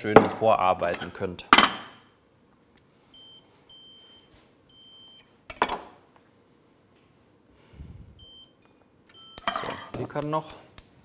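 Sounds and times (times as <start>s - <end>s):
kitchenware clattering: 0.0s - 2.0s, 9.4s - 10.1s.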